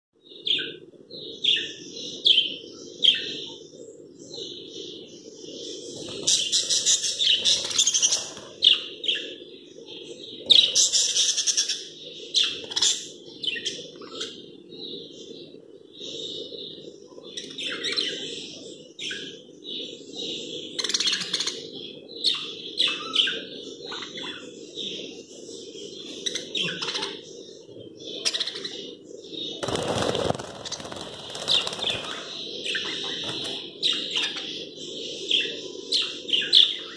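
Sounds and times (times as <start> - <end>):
budgerigars chirping: 6.0 - 9.3, 10.4 - 14.4, 28.1 - 36.9
rustling burst: 29.6 - 32.2.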